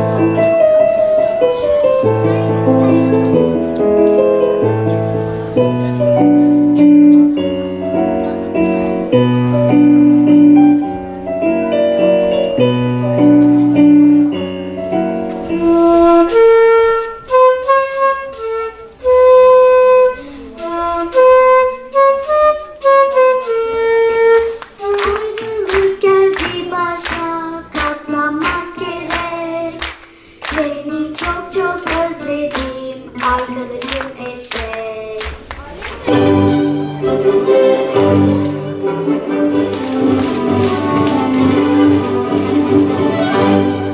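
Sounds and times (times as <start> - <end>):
keyboard chords: 0.0 - 33.8, 36.0 - 43.9
solo flute melody: 15.1 - 24.7.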